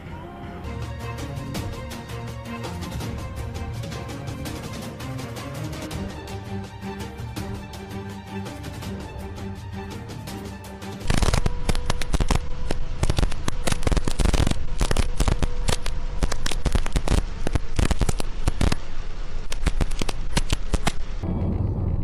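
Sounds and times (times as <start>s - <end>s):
rapid crackling and popping: 10.5s - 22.0s.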